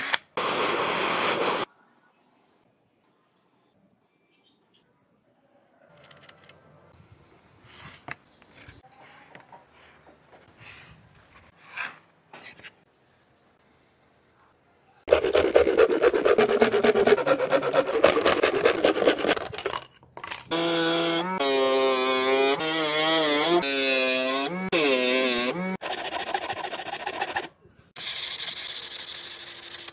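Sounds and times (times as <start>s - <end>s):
saw cutting plastic sheet: 15.1s - 19.8s, 20.5s - 29.9s
tool scratching plastic sheet: 15.1s - 19.8s, 24.8s - 29.9s.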